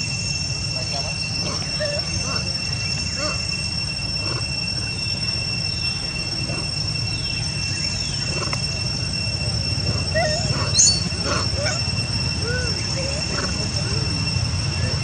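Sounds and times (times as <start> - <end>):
high-pitched insect drone: 0.0 - 15.0
baby monkey squeaky cries: 10.2 - 13.4.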